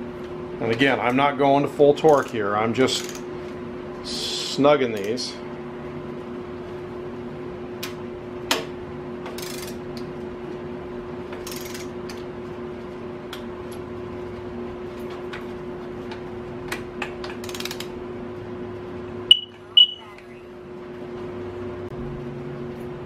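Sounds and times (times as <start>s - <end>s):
steady hum: 0.0s - 14.9s, 15.6s - 23.0s
torque wrench ratcheting: 3.0s - 3.2s, 9.4s - 9.8s, 11.4s - 11.9s, 17.4s - 17.9s.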